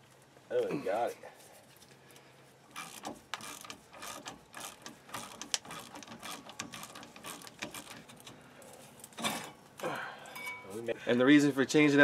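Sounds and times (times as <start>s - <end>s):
socket ratchet clicking: 2.8s - 8.2s.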